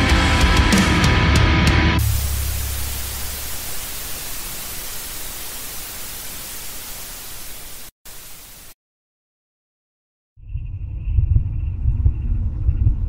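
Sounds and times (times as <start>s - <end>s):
static hiss: 2.0s - 8.8s
low rumble: 10.4s - 13.0s.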